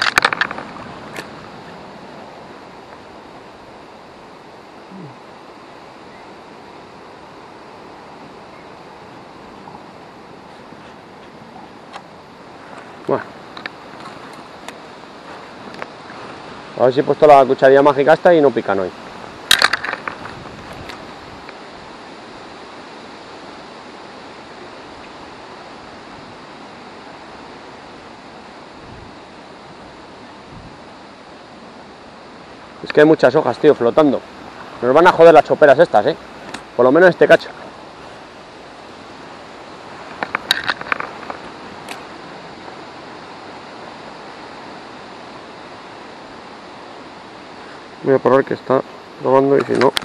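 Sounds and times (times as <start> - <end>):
fishing reel clatter: 0.0 - 1.3, 19.4 - 21.0, 40.2 - 42.0
river water rushing: 0.0 - 49.6
wind: 0.0 - 50.0
wind on microphone: 18.9 - 22.0, 28.6 - 31.1
fishing reel clicks: 19.5 - 20.2.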